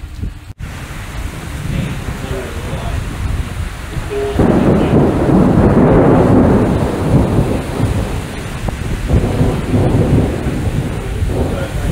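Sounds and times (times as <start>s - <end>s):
thunder rumbling: 0.0s - 11.9s.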